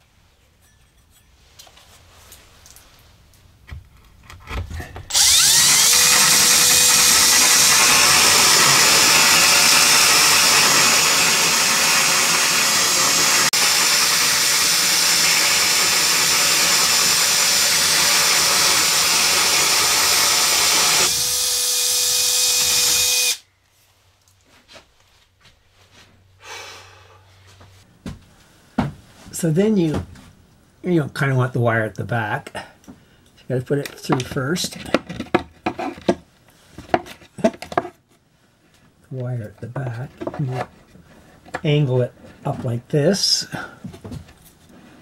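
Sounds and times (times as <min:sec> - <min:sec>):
drill hole saw cutting wood: 0:05.1 - 0:23.4.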